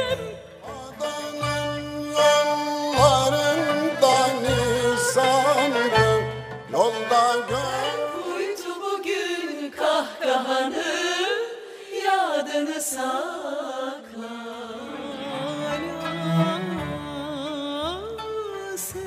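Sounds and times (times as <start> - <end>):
violins playing ornamented melody: 0.0 - 8.4, 14.9 - 17.7
woman singing: 7.9 - 19.0.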